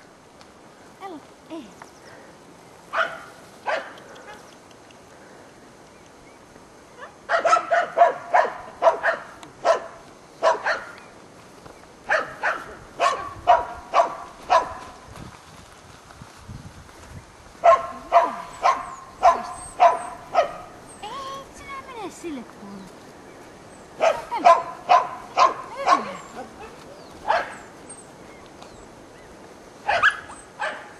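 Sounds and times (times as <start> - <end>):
dog barking: 2.9 - 4.4, 7.3 - 11.0, 12.1 - 14.9, 17.6 - 20.8, 24.0 - 27.7, 29.9 - 30.9.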